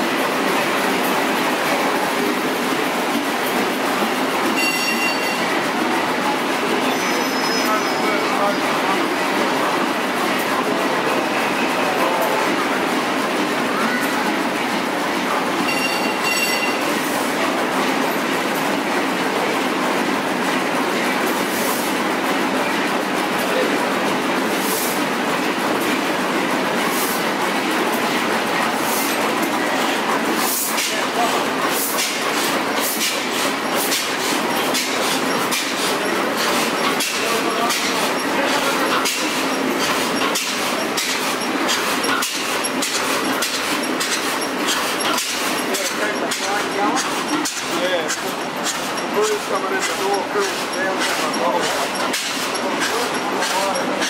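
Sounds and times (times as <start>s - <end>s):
machinery clatter and hiss: 0.0s - 54.0s
short high squeal: 6.9s - 8.1s.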